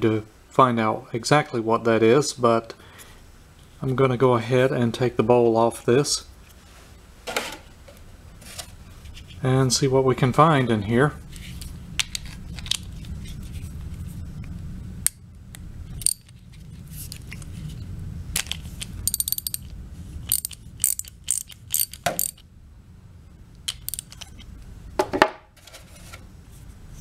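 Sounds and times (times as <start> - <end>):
socket ratchet clicking: 18.4 - 22.4, 23.7 - 24.4.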